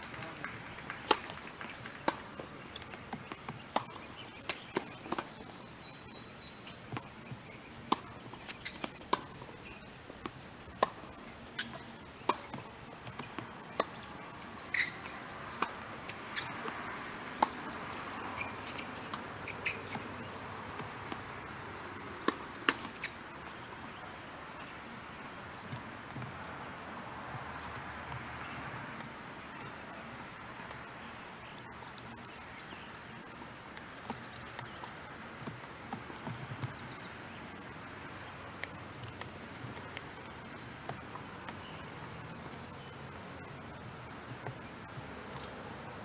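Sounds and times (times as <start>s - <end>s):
tennis balls popping off rackets: 0.0s - 24.7s, 33.7s - 42.9s
steady low hiss: 0.0s - 46.0s
balls bouncing on hard court: 11.6s - 14.1s, 14.7s - 23.2s.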